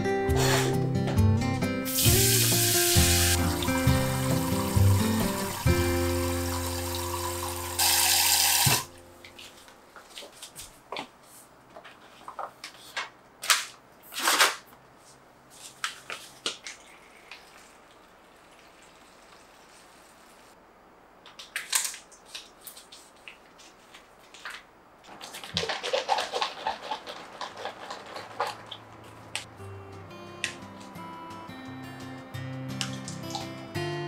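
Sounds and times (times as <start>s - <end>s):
loud plastic crinkles: 13.5s - 14.7s, 25.1s - 29.2s.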